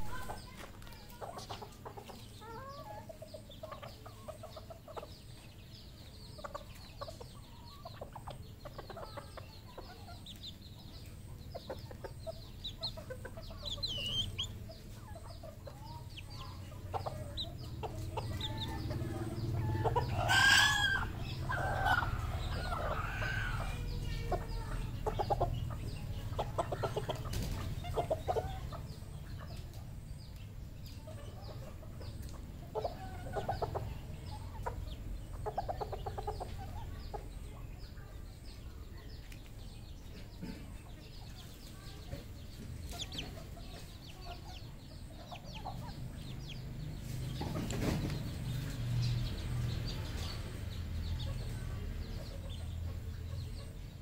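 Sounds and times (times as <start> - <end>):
junglefowl clucking and calling: 0.0 - 5.4, 11.1 - 29.8, 31.0 - 37.5.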